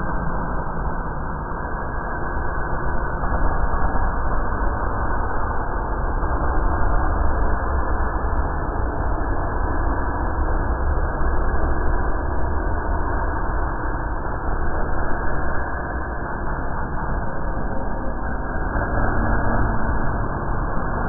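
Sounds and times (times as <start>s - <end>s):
dark ambient drone: 0.0s - 21.0s.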